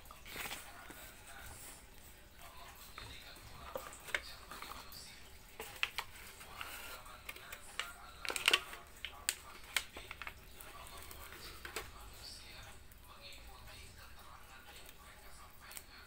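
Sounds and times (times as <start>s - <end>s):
packaging rustling: 0.0s - 12.4s.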